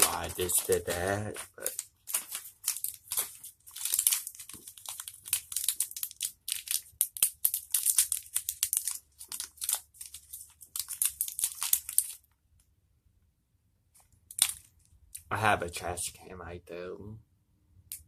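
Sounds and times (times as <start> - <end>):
snack wrapper crinkling and tearing: 0.0 - 12.4, 14.3 - 15.3.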